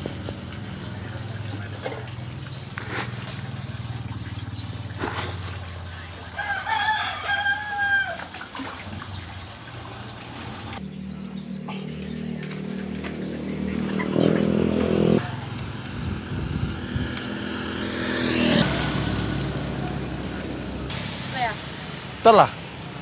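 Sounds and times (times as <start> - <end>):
rooster crowing: 6.4 - 8.3.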